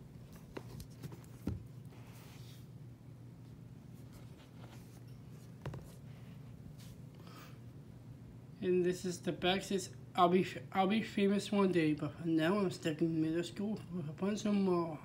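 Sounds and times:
faint low hum: 0.0 - 15.0
book handling taps and knocks: 0.3 - 1.8, 5.5 - 6.0.

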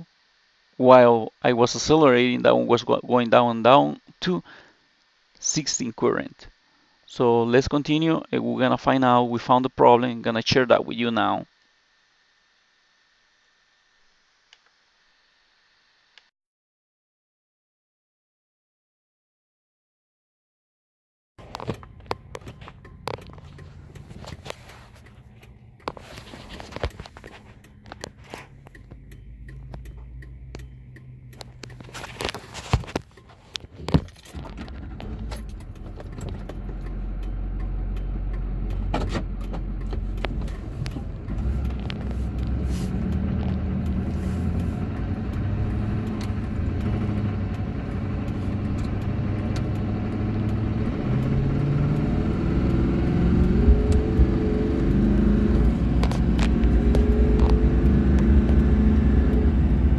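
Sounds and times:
diesel truck engine accelerating: 21.4 - 59.9
road noise: 21.4 - 59.9.

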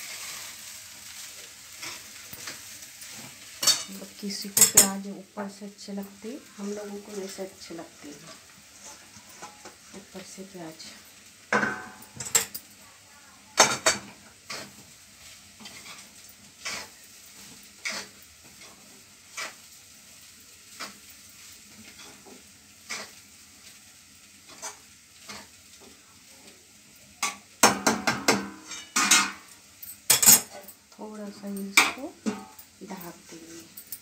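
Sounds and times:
faint sizzle: 0.0 - 34.0
spatula scraping steel pan: 15.6 - 19.6, 21.8 - 23.2.

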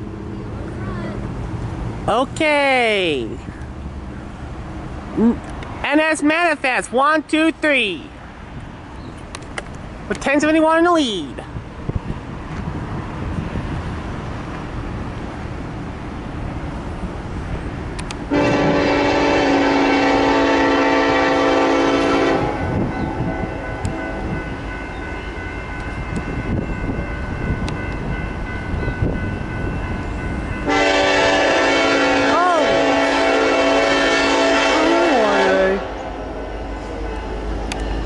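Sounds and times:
low rumble of train: 0.0 - 38.0
locomotive air horn blast: 18.3 - 24.2, 30.6 - 36.1.

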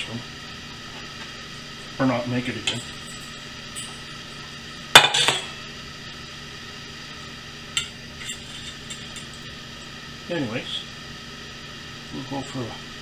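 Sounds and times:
tableware clattering: 5.0 - 5.5.

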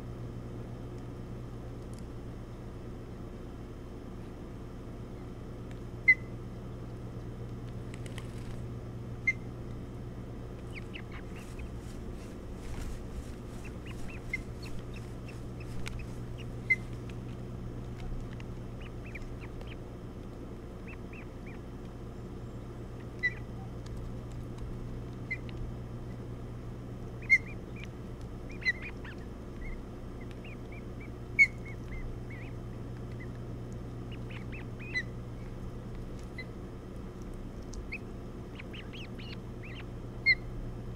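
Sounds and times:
low hum: 0.0 - 40.9
ospreys chirping: 6.0 - 6.4, 9.2 - 9.6, 10.5 - 17.5, 18.6 - 20.1, 20.7 - 23.8, 25.2 - 26.3, 27.1 - 40.6.

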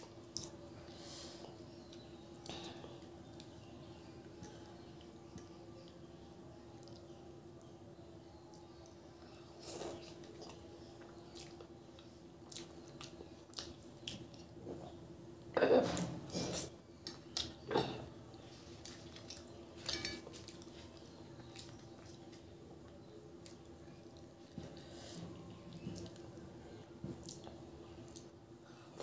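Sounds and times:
person chewing with wet smacks: 0.0 - 0.6, 9.6 - 14.9, 16.4 - 17.7, 18.8 - 19.6, 20.2 - 28.4
faint steady hum: 0.0 - 29.0.

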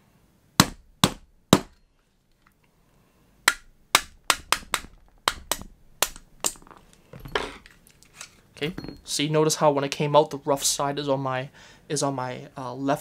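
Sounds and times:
hammer tapping metal punch: 3.5 - 7.7.

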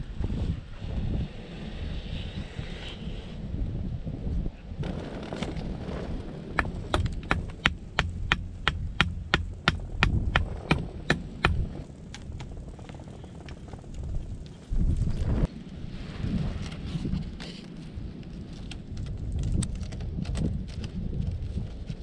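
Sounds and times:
hammer striking: 6.6 - 11.8.

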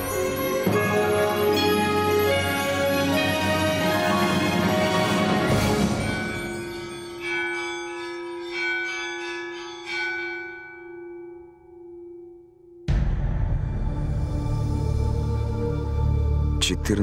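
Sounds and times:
church bell ringing: 5.0 - 12.5.

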